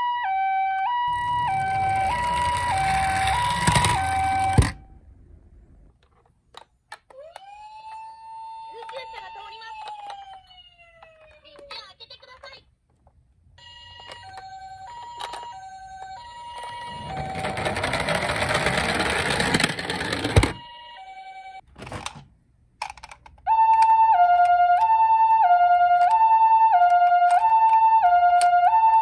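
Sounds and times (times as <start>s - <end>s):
toy ambulance two-tone siren: 0.0s - 4.8s, 7.1s - 11.7s, 13.6s - 21.6s, 23.5s - 29.0s.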